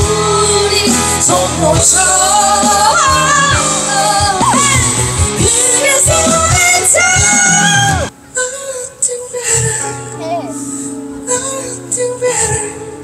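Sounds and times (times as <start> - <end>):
live band playing: 0.0 - 8.1
lead singer singing: 0.0 - 13.0.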